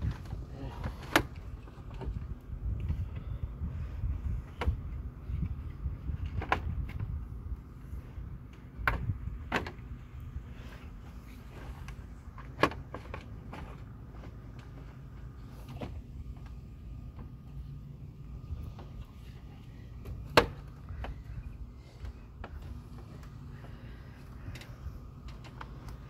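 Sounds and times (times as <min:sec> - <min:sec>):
clicks and knocks of car parts: 0:08.5 - 0:10.0, 0:11.8 - 0:14.8, 0:20.0 - 0:26.0.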